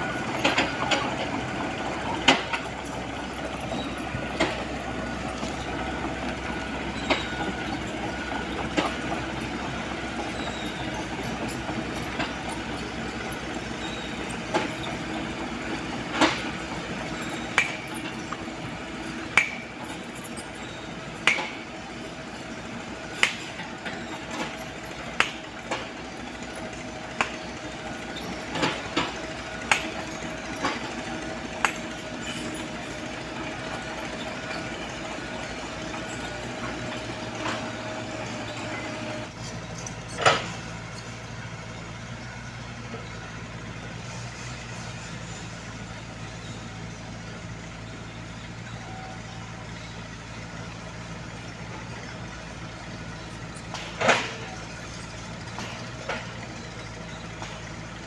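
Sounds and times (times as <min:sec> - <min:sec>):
excavator diesel engine running: 0:00.0 - 0:58.0
sharp metallic clanks: 0:16.1 - 0:18.4, 0:19.2 - 0:22.1, 0:23.1 - 0:35.0.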